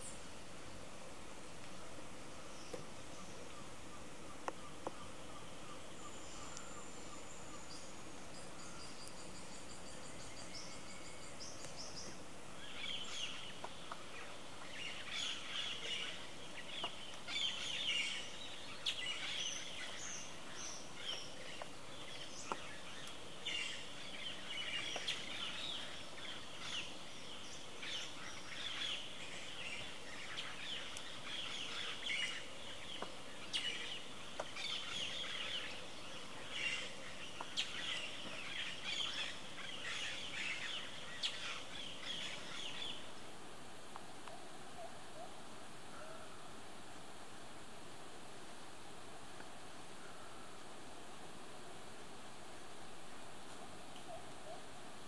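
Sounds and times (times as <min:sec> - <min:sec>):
faint background hiss: 0:00.0 - 0:55.0
small birds chirping: 0:02.4 - 0:43.3.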